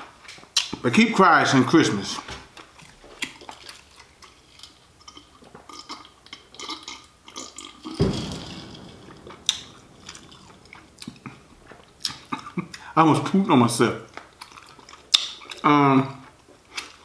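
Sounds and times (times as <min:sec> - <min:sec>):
deep explosion boom: 0:08.0 - 0:13.8.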